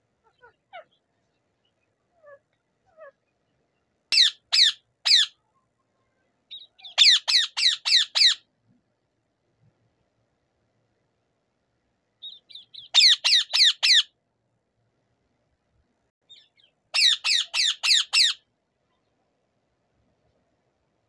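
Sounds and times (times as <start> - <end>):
parakeet screeching: 4.2 - 5.4, 6.8 - 8.4, 12.9 - 14.1, 17.0 - 18.4.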